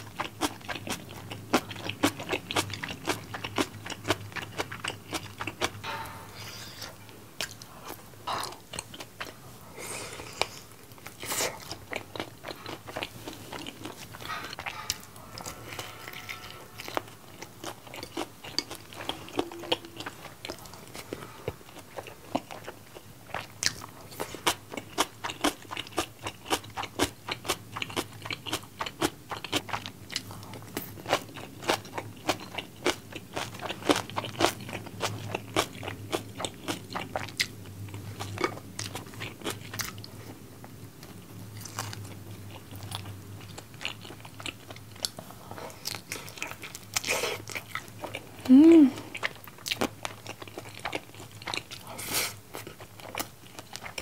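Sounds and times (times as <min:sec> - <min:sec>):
crunchy chewing: 0:00.0 - 0:05.9, 0:06.8 - 0:54.0
person humming: 0:48.5 - 0:49.0.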